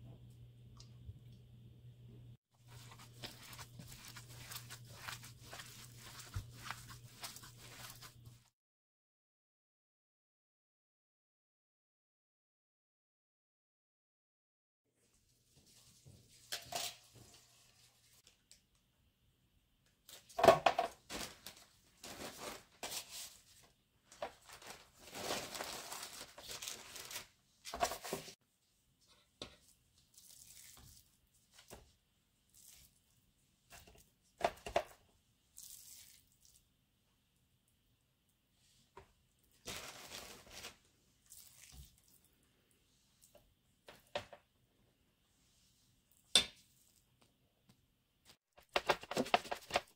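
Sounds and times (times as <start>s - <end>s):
paper and plastic crinkling: 2.6s - 8.4s, 21.0s - 28.4s, 39.6s - 41.7s
spoon scraping plastic bowl: 2.6s - 8.4s.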